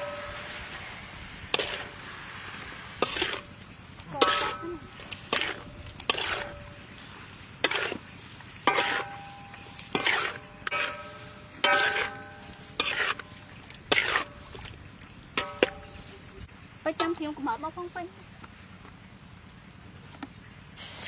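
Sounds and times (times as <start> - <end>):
metal spatula scraping a wok: 0.0 - 14.6, 15.4 - 16.2.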